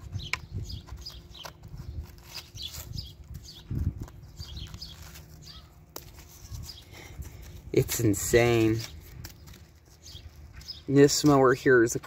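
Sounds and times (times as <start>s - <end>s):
small birds chirping: 0.0s - 12.0s
grass clippings rustling: 0.8s - 12.0s.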